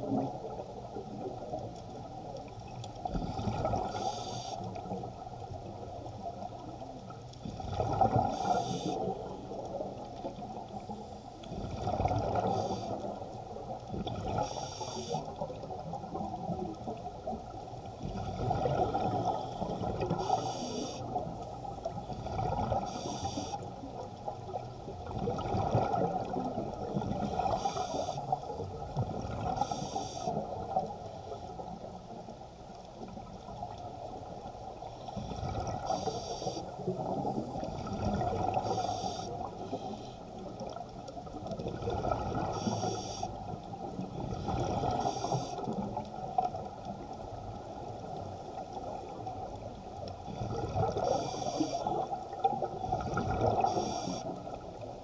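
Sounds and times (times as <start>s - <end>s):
regulator breathing hiss: 3.8s - 4.7s, 8.3s - 9.1s, 12.5s - 13.1s, 14.4s - 15.3s, 20.2s - 21.2s, 22.9s - 23.6s, 27.4s - 28.4s, 29.6s - 30.4s, 35.8s - 36.7s, 38.6s - 40.2s, 42.5s - 43.4s, 44.9s - 45.7s, 51.0s - 52.0s, 53.6s - 54.4s.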